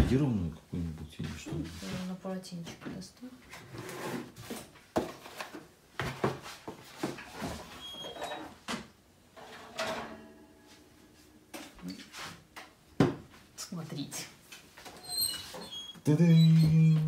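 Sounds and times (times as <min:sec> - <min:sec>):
oven door and pan clattering: 0:08.1 - 0:10.4.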